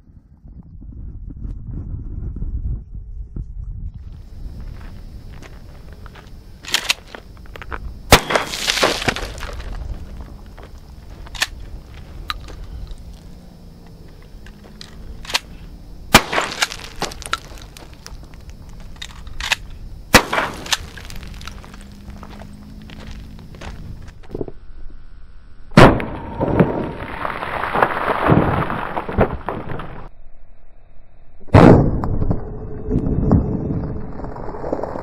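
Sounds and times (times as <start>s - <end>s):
shotgun shots with echo: 8.1s - 9.4s, 16.1s - 17.2s, 20.1s - 21.0s.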